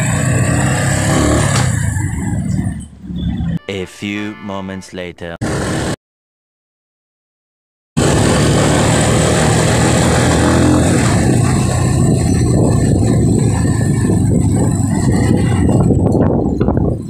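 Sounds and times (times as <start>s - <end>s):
motorcycle engine running: 0.0s - 3.5s, 5.4s - 6.0s, 8.0s - 17.0s
dense rushing noise: 8.0s - 17.0s.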